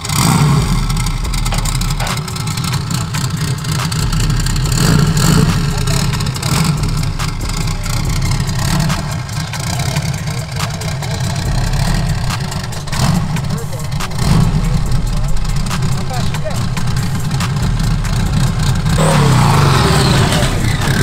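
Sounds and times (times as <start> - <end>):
buggy engine revving: 0.0 - 21.0.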